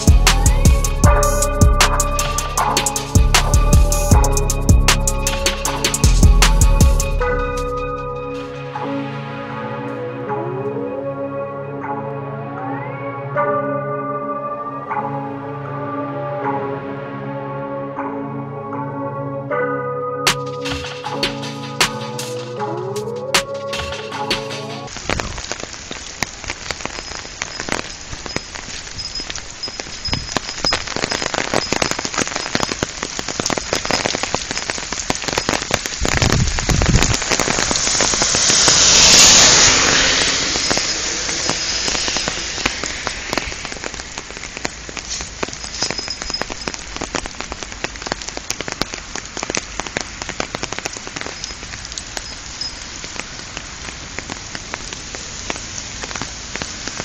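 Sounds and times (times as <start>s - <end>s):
steady rain falling: 0.0s - 10.9s, 20.2s - 57.0s
car tyres hissing on wet road: 24.8s - 57.0s.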